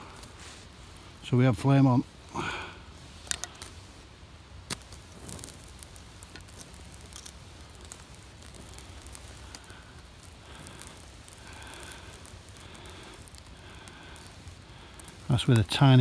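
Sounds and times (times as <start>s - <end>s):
soft steady hiss: 0.0s - 16.0s
tinder crackling and popping: 0.0s - 16.0s.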